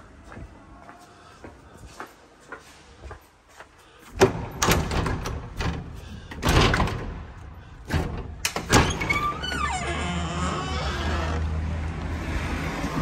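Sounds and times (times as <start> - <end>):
door latch knocks and clatters: 4.2 - 7.2
street traffic: 10.4 - 13.0.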